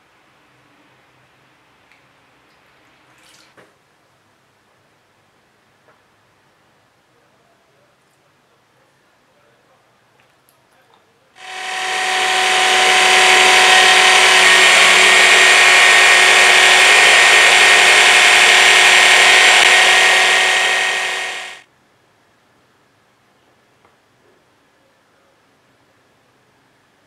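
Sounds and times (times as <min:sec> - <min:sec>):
hand blender motor whine: 0:11.4 - 0:21.6.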